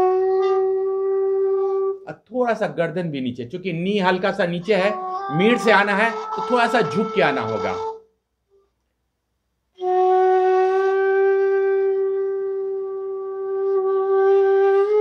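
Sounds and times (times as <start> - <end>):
breathy flute holding a low note: 0.0 - 2.1, 4.1 - 8.1, 9.8 - 15.0.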